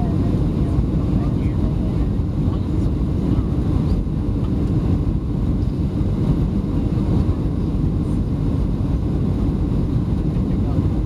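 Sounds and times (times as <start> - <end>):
airplane cabin engine rumble: 0.0 - 11.0.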